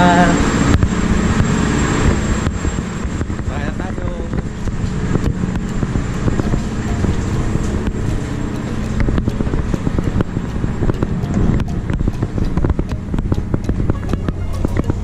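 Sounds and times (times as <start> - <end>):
ferry engine rumble: 0.0 - 15.0
footsteps on metal stairs: 4.4 - 15.0.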